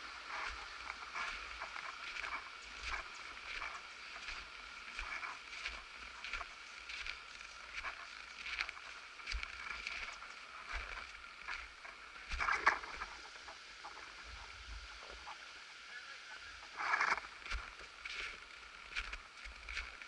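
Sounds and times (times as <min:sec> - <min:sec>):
footsteps crunching in snow: 0:00.0 - 0:13.2, 0:16.8 - 0:20.0.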